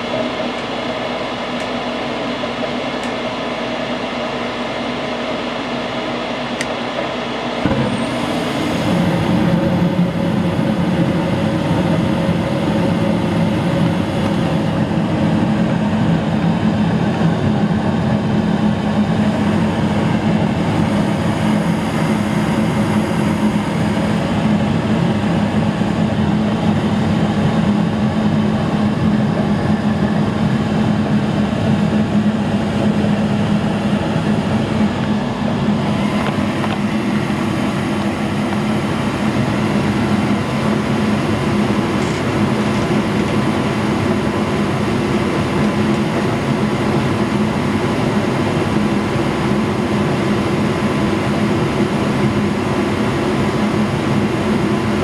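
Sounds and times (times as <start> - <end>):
gas furnace humming: 0.0 - 55.0
rush of air and flame: 7.6 - 30.7.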